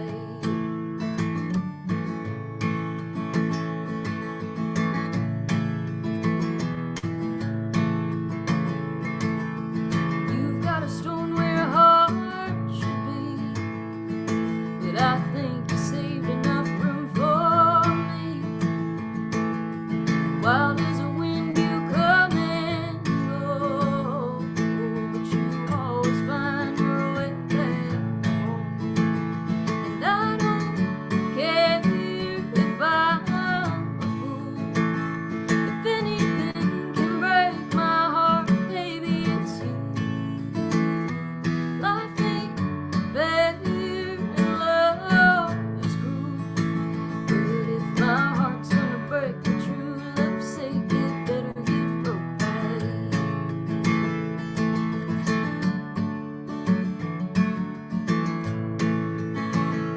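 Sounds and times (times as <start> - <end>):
woman singing: 0.0 - 1.4, 10.0 - 19.0, 20.0 - 53.6
strummed acoustic guitar: 0.0 - 59.9.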